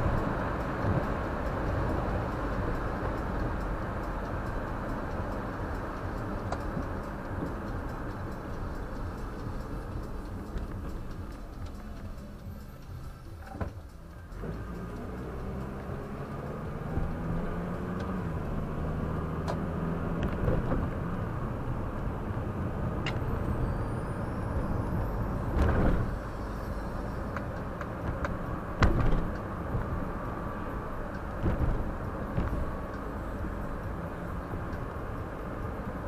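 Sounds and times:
car engine and tyre rumble: 0:00.0 - 0:36.0.

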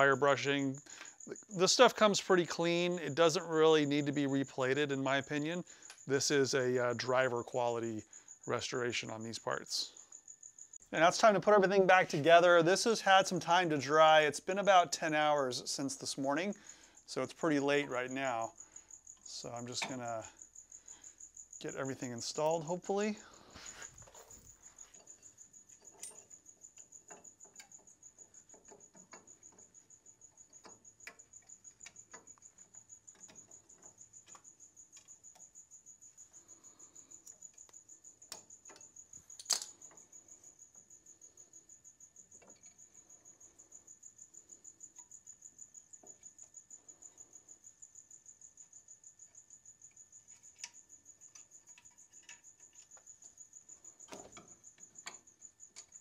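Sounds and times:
cricket chirping: 0:00.0 - 0:56.0
light metallic clicks and clinks: 0:24.0 - 0:29.7, 0:37.2 - 0:40.0.

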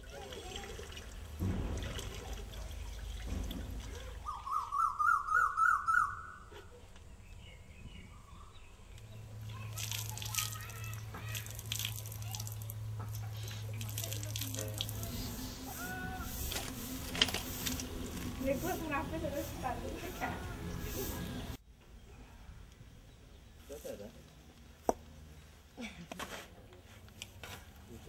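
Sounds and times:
water running and splashing: 0:00.0 - 0:04.3, 0:09.2 - 0:21.6
bird rising calls: 0:04.2 - 0:06.8.

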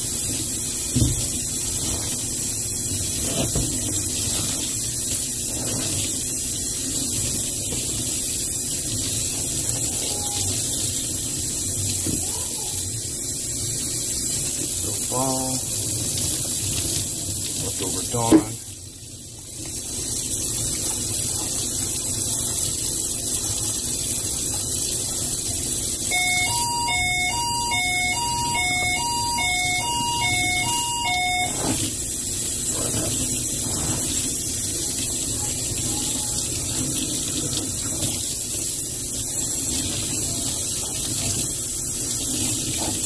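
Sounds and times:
tap water running into sink: 0:00.0 - 0:43.0
electronic two-note jingle: 0:26.1 - 0:31.8.

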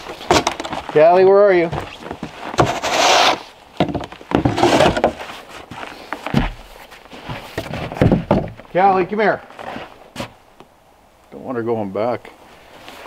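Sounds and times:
knocks: 0:07.6 - 0:08.6.

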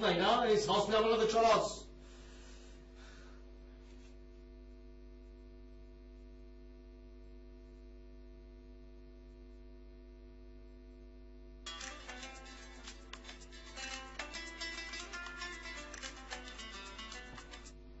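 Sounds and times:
faint electrical hum: 0:00.0 - 0:18.0.

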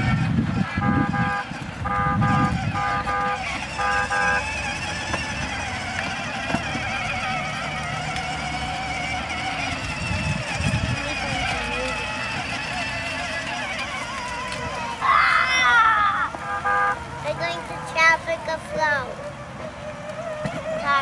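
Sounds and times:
toy car electronic horn beeps: 0:00.0 - 0:14.6, 0:16.3 - 0:18.2
toy car motor and wheels: 0:00.0 - 0:21.0.

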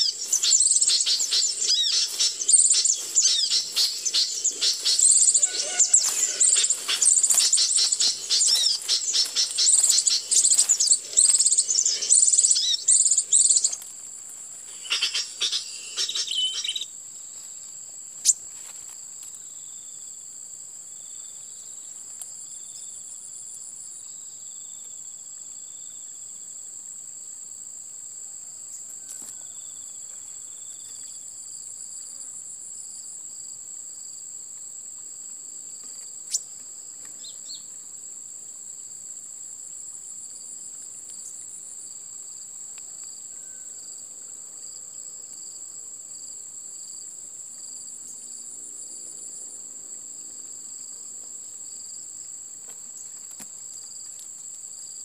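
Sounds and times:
high-pitched insect drone: 0:00.0 - 0:13.8, 0:14.7 - 0:16.9.

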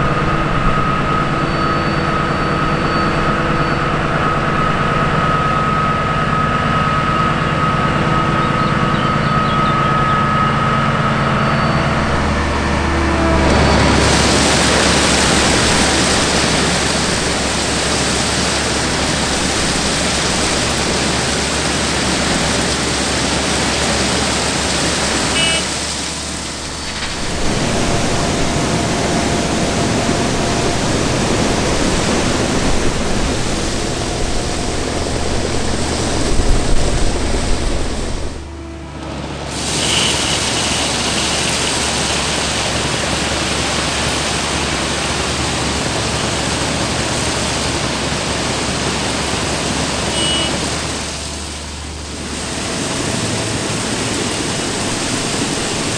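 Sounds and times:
running machinery: 0:00.0 - 0:55.9
stone ballast pouring: 0:11.8 - 0:38.5, 0:39.4 - 0:55.9.

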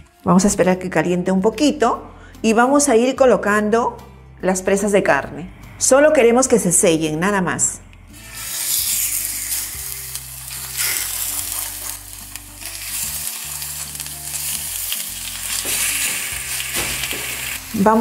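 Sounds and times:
meat sizzling in hot oil: 0:08.1 - 0:18.0.

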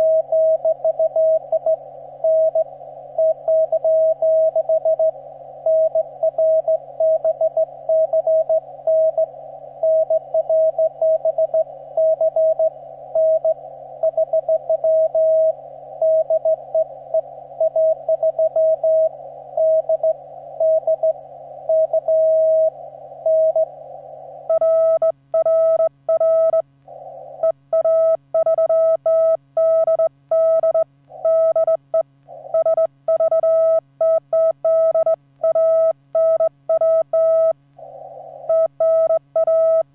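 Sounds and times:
radio hiss: 0:00.0 - 0:24.5, 0:26.7 - 0:27.7, 0:32.1 - 0:32.8, 0:37.6 - 0:38.8
morse code tone: 0:24.5 - 0:26.6, 0:27.7 - 0:37.6, 0:38.4 - 0:39.9.

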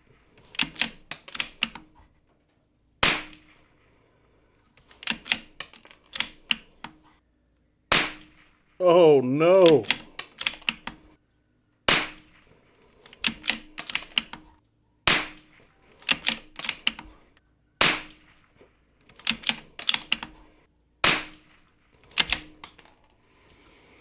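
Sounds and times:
rifle bolt clicks: 0:00.4 - 0:02.0, 0:04.8 - 0:07.0, 0:09.6 - 0:11.1, 0:12.0 - 0:14.5, 0:15.2 - 0:17.2, 0:19.0 - 0:20.4, 0:21.2 - 0:23.1
rifle shots: 0:03.0 - 0:03.8, 0:07.9 - 0:08.6, 0:11.9 - 0:12.5, 0:15.0 - 0:16.8, 0:17.8 - 0:18.6, 0:21.0 - 0:22.7.

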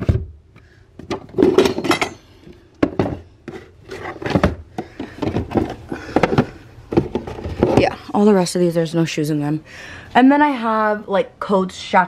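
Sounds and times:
cardboard boxes handled and opened: 0:02.8 - 0:08.0.

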